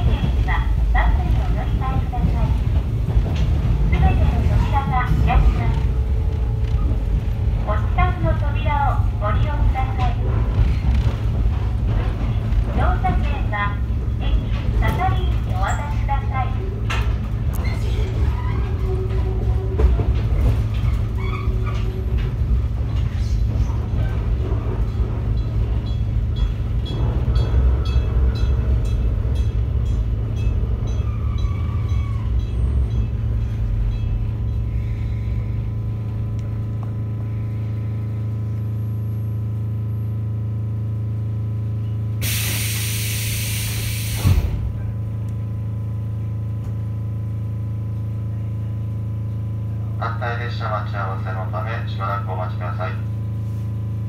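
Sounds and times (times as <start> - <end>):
train wheels rumbling on rails: 0.0 - 54.0
compressed air hissing: 42.2 - 44.4.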